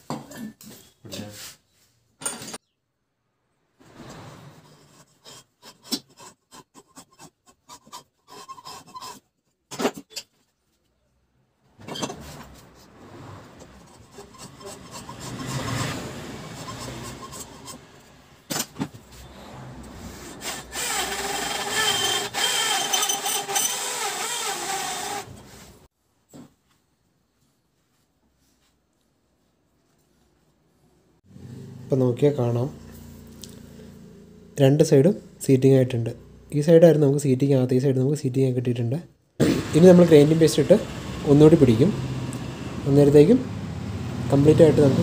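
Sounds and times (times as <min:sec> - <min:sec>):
cutter scraping metal: 0:03.9 - 0:10.3, 0:11.9 - 0:18.2, 0:19.2 - 0:25.5.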